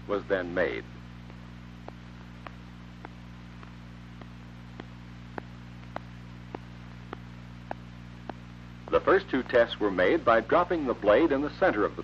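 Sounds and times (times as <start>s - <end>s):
film soundtrack hiss: 0.0s - 12.0s
low electrical hum: 0.0s - 12.0s
faint regular clicks: 1.1s - 9.7s.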